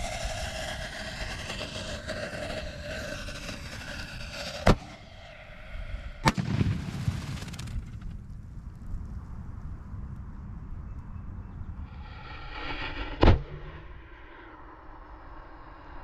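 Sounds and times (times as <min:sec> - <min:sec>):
firework explosions: 0:00.0 - 0:05.5, 0:06.2 - 0:08.3
low rumble: 0:00.0 - 0:16.0.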